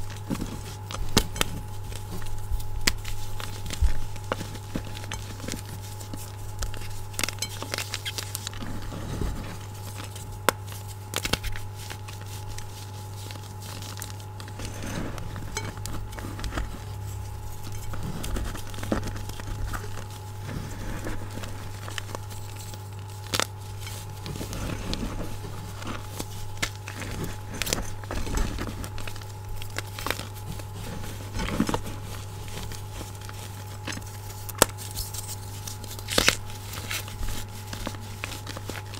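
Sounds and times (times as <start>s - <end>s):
chalk crunching and crumbling: 0.0s - 38.9s
chalk pieces cracking: 0.0s - 38.9s
steady low hum: 0.0s - 38.9s
hands squeaking: 3.0s - 8.6s, 33.2s - 37.1s.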